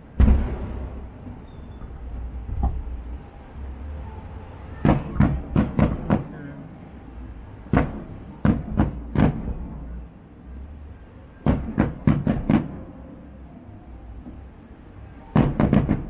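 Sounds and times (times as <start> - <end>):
fireworks booming: 0.0 - 3.1, 4.6 - 6.7, 7.6 - 10.1, 11.4 - 13.1, 15.3 - 16.0.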